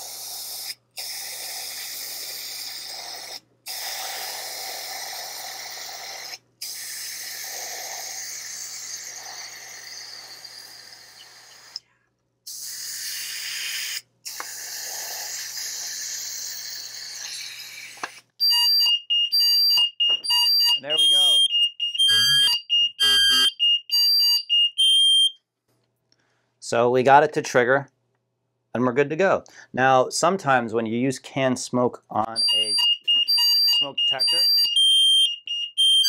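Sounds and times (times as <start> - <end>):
aerosol spray hissing: 12.5 - 18.2
smoke alarm pulsing beeps: 18.4 - 25.4, 32.3 - 36.0.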